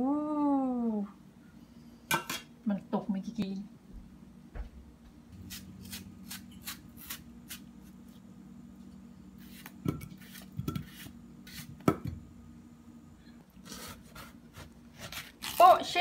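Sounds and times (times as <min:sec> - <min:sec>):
steady low hum: 0:00.0 - 0:15.5
knife scraping through melon: 0:05.4 - 0:08.2, 0:09.4 - 0:11.8, 0:13.6 - 0:15.9.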